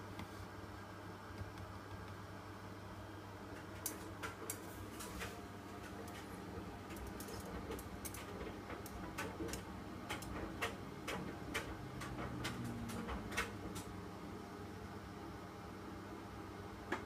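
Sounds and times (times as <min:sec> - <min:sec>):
dryer motor and fan hum: 0:00.0 - 0:17.0
clicks of tumbling laundry: 0:03.6 - 0:14.0.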